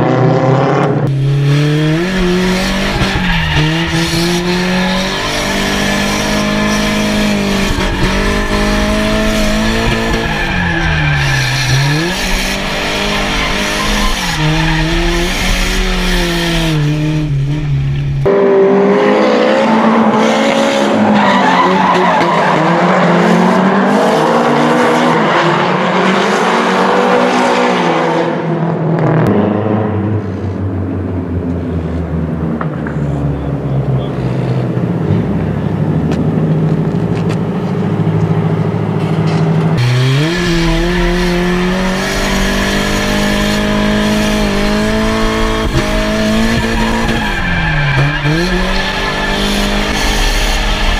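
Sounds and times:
tires screeching and skidding: 0.0s - 28.6s, 39.0s - 50.9s
car engines revving hard: 0.0s - 50.9s.

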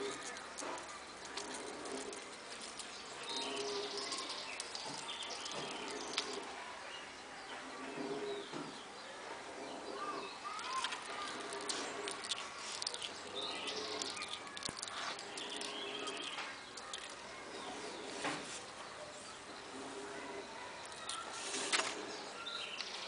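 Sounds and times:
sloth chewing leaf: 0.0s - 6.7s, 9.5s - 23.0s.

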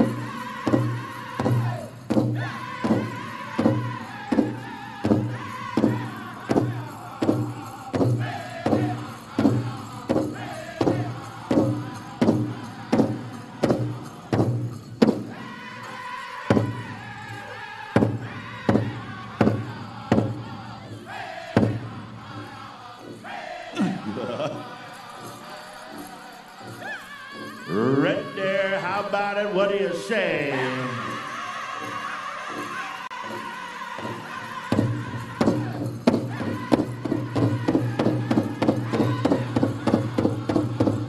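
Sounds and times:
big drum steady beat: 0.0s - 15.5s
group of voices singing: 0.0s - 41.0s.

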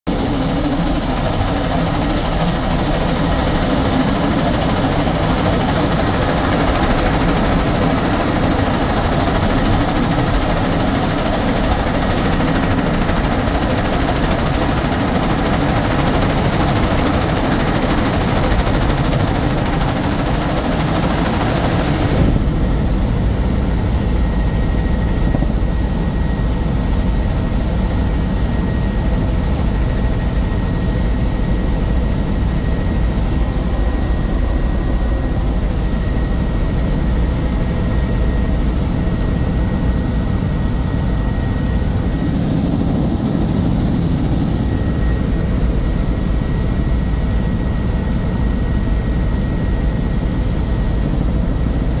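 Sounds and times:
helicopter engine and rotor: 0.0s - 52.0s.

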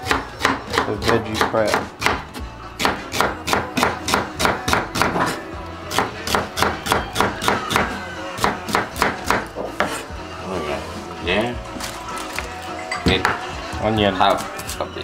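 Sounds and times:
knife chopping on cutting board: 0.0s - 10.0s
background music: 0.0s - 15.0s.

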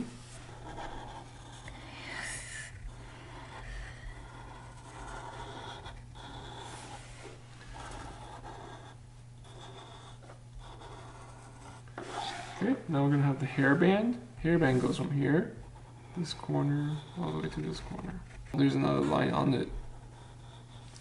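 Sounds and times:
low steady hum: 0.0s - 21.0s
marker rubbing on paper: 0.3s - 1.7s, 2.8s - 12.6s.

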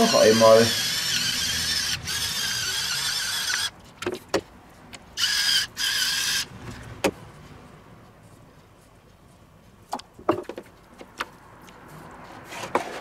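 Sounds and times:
electric pepper mill whirring: 0.0s - 3.7s, 5.2s - 6.5s.

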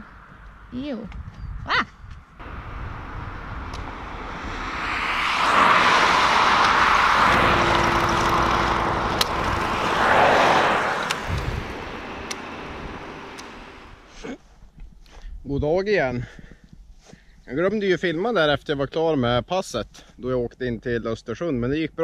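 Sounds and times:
road traffic passing: 2.4s - 14.1s
sharp clicks: 11.0s - 13.7s.

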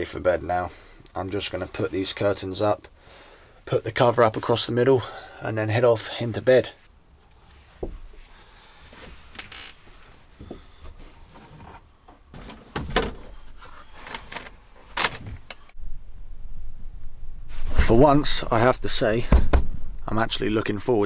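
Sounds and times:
cloth rustling: 6.8s - 15.8s.

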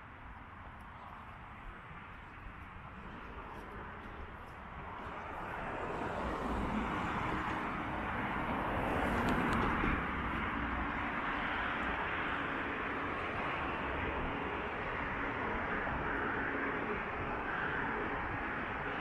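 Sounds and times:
road traffic roar: 0.0s - 19.0s
car passing close: 5.0s - 18.9s.

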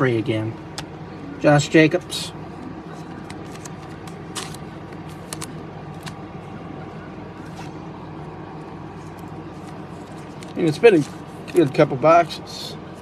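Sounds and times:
low background hum: 0.0s - 13.0s
cards sliding swishes and clicks: 2.9s - 6.2s, 7.4s - 7.8s, 8.9s - 11.8s.

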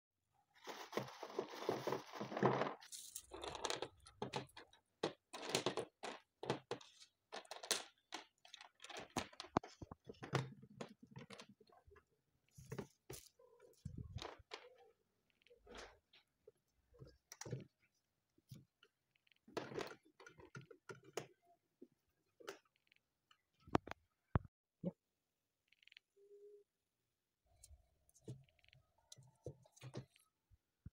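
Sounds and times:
plastic parts clicking and crunching: 0.7s - 24.5s.

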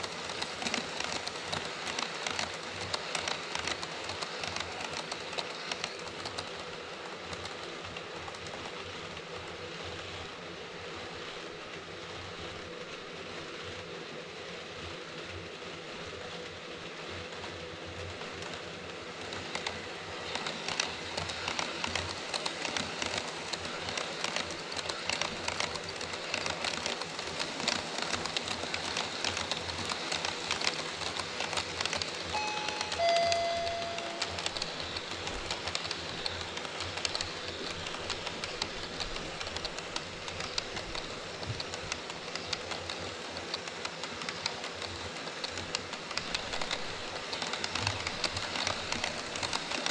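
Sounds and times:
rail-joint clicking: 0.0s - 9.3s, 18.4s - 49.9s
model train wheels rattling: 0.0s - 9.7s, 18.0s - 49.9s
brief tones: 32.4s - 34.8s.

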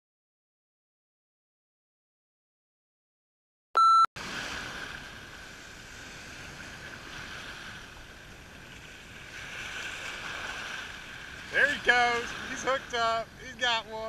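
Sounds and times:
small surf waves washing: 4.2s - 14.0s.

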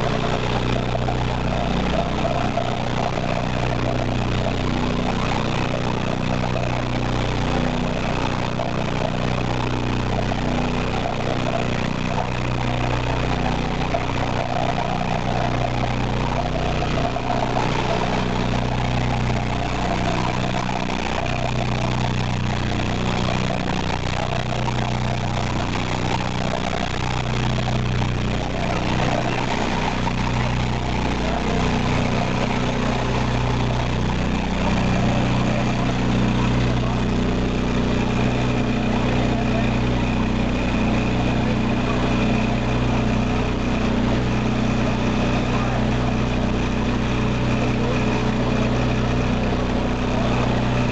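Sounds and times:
machine hum: 0.0s - 50.9s.

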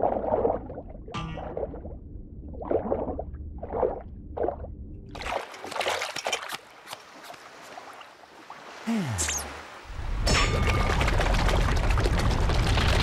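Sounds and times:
water splashing and dripping: 5.1s - 13.0s.

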